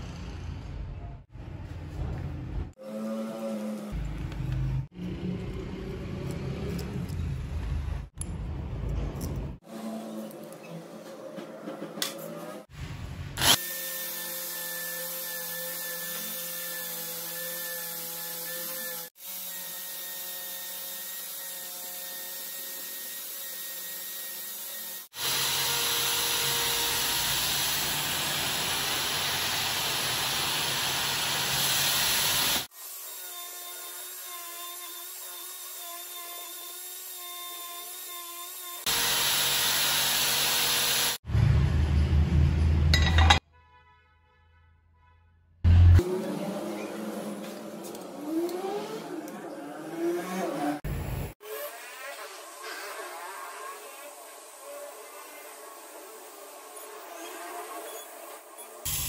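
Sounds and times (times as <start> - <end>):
electric drill motor whine: 25.1 - 32.7.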